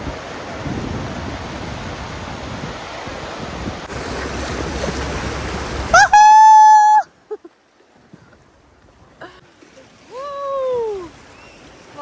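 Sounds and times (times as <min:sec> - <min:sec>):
river rapids rushing: 0:00.0 - 0:07.1.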